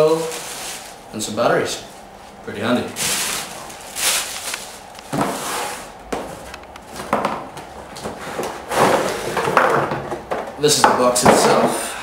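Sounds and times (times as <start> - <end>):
cardboard and plastic rustling: 0.0 - 1.1, 2.8 - 10.5.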